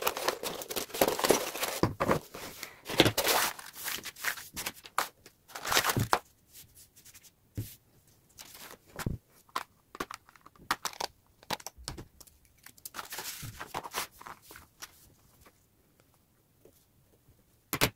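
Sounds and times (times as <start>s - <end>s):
paper rustling and crinkling: 0.0s - 6.3s, 8.4s - 11.7s, 12.6s - 15.6s.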